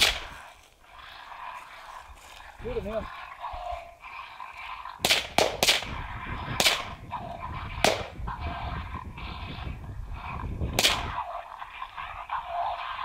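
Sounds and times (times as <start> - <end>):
gunshot cracks: 5.0 - 5.9, 6.6 - 6.9, 7.8 - 8.2, 10.8 - 11.1.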